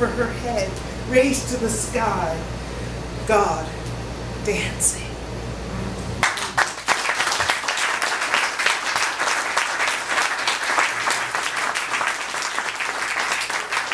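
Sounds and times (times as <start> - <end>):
audience applauding: 6.2 - 13.9.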